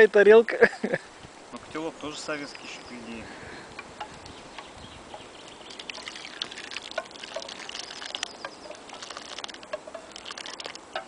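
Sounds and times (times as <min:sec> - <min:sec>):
liquid pouring and splashing: 0:05.5 - 0:11.0.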